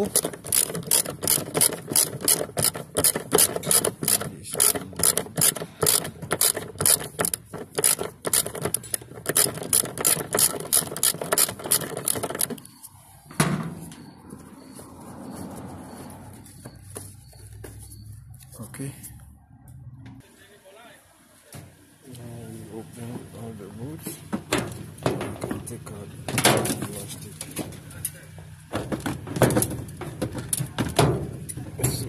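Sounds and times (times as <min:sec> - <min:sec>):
ratchet wrench clicking: 0:00.0 - 0:12.7.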